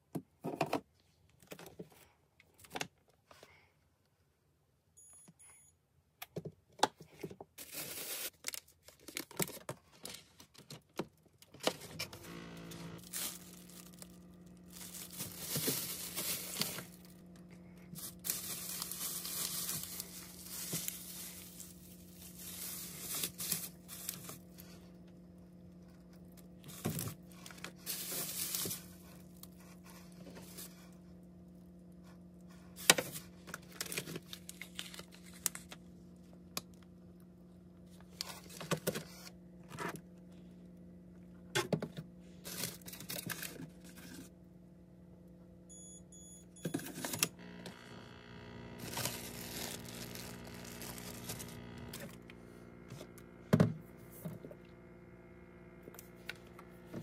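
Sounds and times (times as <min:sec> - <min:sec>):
plastic bags and containers rustling: 0:07.1 - 0:24.8, 0:26.1 - 0:30.8, 0:32.7 - 0:35.8, 0:41.7 - 0:44.3, 0:48.7 - 0:53.2
steady low hum: 0:12.0 - 0:57.0.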